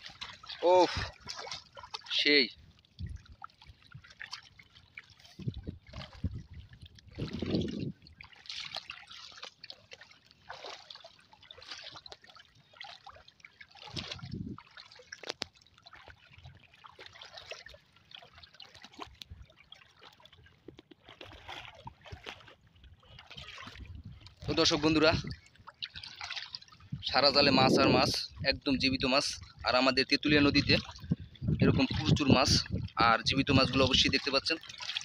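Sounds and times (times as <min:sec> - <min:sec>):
heavy low splashes: 0:00.0 - 0:04.3, 0:05.4 - 0:09.2, 0:21.3 - 0:35.0
shallow water sloshing: 0:00.0 - 0:35.0.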